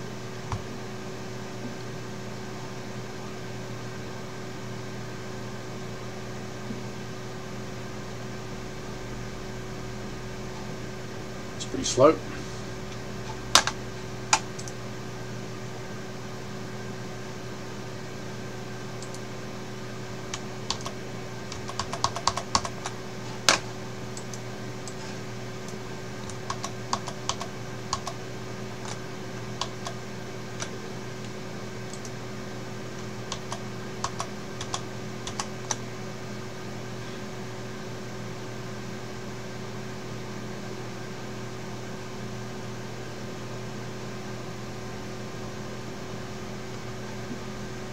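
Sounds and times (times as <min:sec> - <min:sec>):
low electrical hum: 0:00.0 - 0:47.9
keyboard typing: 0:13.3 - 0:14.8, 0:20.3 - 0:25.0, 0:25.6 - 0:28.2, 0:29.6 - 0:30.0, 0:30.6 - 0:30.8, 0:31.9 - 0:32.2, 0:33.0 - 0:35.8.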